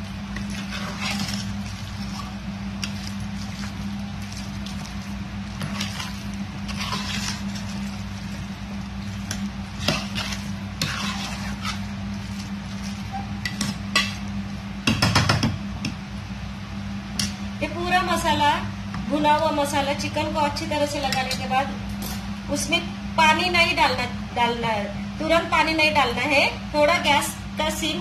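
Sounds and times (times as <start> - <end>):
steady low hum: 0.0 - 28.0
spatula scraping metal pot: 0.4 - 1.6, 5.6 - 8.0, 9.2 - 14.1.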